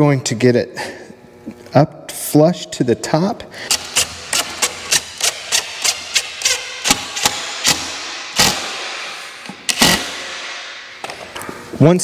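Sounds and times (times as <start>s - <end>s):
impact driver rattling into wood: 3.7s - 10.6s.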